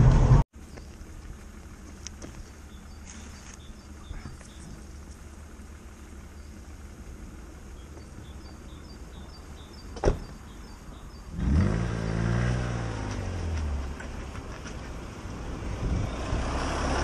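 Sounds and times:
car door slamming: 9.9 - 10.4
car engine revving: 11.2 - 17.0.

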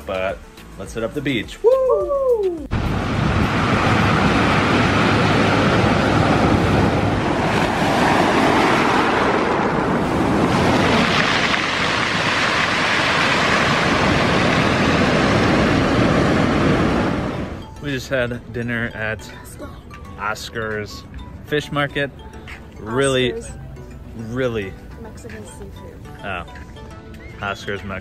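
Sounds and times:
ocean surf breaking: 2.7 - 17.7.

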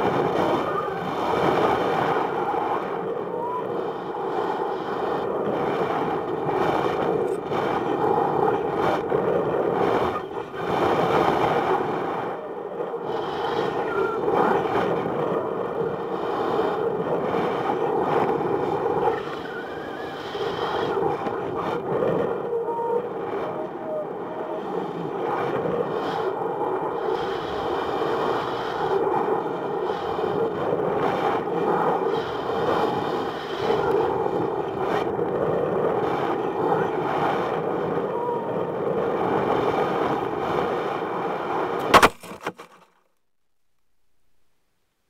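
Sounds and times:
rushing air on microphone: 0.0 - 42.3
payload hitting the ground: 41.9 - 42.9.

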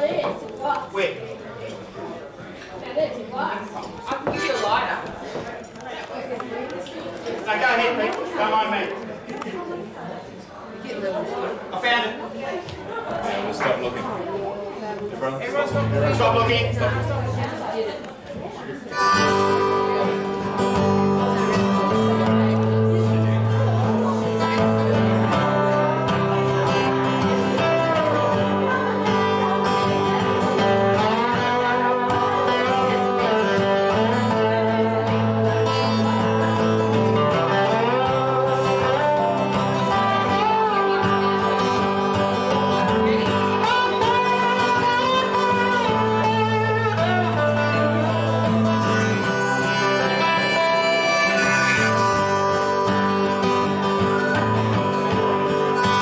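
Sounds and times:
acoustic guitar chords: 15.5 - 18.0, 18.8 - 56.0
slide guitar lead: 15.5 - 18.2, 18.8 - 56.0.

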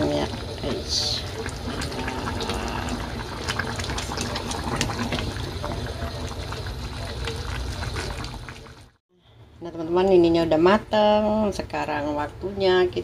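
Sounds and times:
stew bubbling in saucepan: 0.0 - 9.0.

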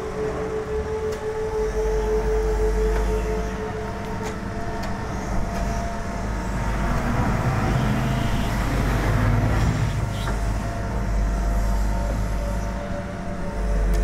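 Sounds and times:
excavator diesel engine running: 0.0 - 14.0.

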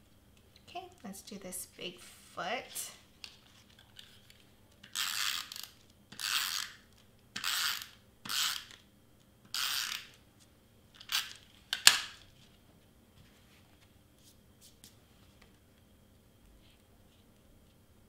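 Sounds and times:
tape runner rasping on card: 7.4 - 8.8.

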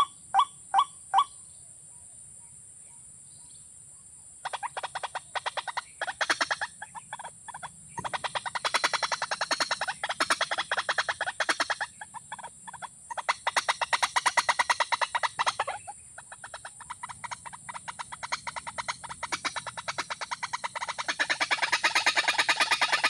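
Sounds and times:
rapid clicking animal calls: 0.0 - 1.3, 4.4 - 23.0.

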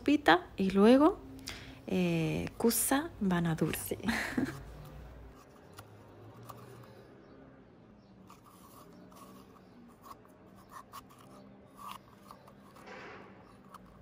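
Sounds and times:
corer scraping zucchini: 8.2 - 14.0.

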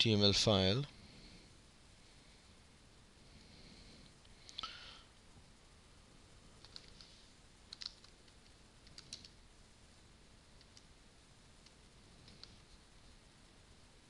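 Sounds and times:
computer mouse clicks: 6.6 - 7.1, 7.7 - 9.4, 10.6 - 10.9, 11.6 - 12.7.

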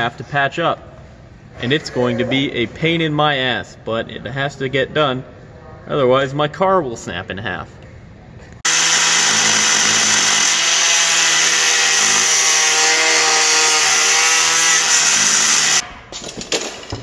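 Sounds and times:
angle grinder cutting steel: 8.7 - 15.9.

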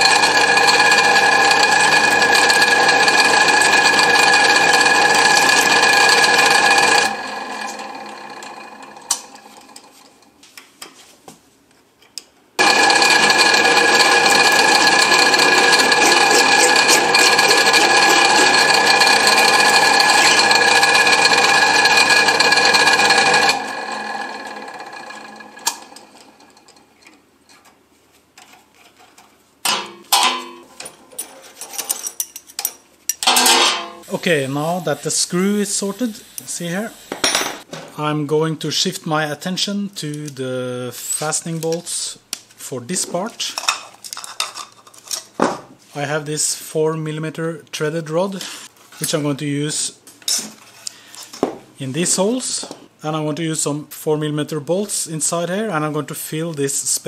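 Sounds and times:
motor coasting down: 0.0 - 9.8, 12.6 - 26.4
electric grinder grinding metal: 0.0 - 10.0, 12.6 - 26.6.

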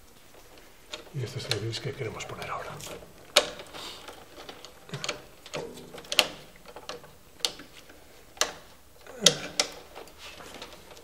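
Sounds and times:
electrical cables clicking and knocking: 0.0 - 11.0.

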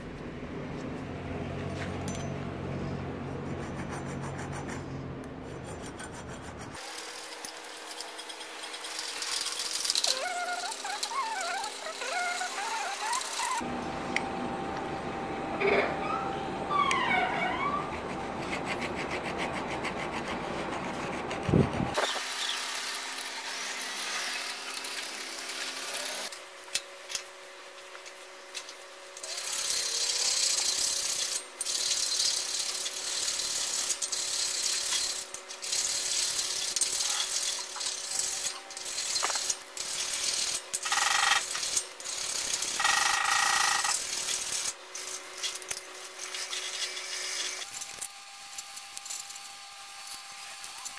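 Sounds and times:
hand file rasping on steel: 3.3 - 7.3.

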